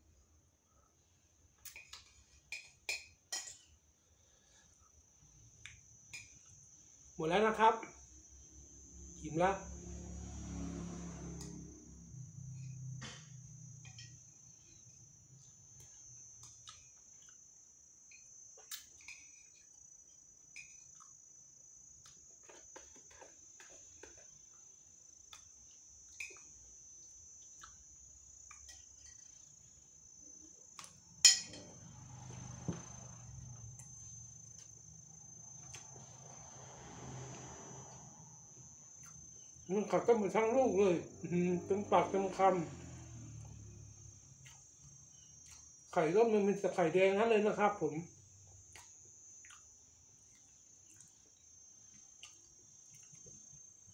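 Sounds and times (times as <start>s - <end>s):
crickets chirring: 0.0s - 53.9s.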